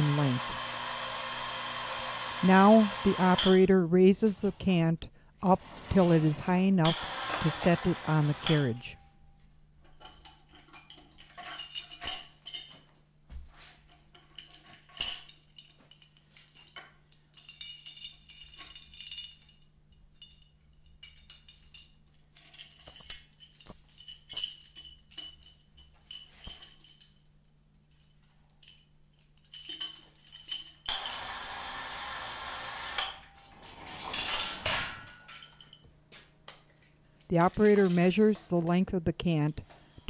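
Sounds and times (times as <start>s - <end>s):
chain and hooks clinking: 7.6s - 13.0s, 13.6s - 31.6s, 33.0s - 39.5s.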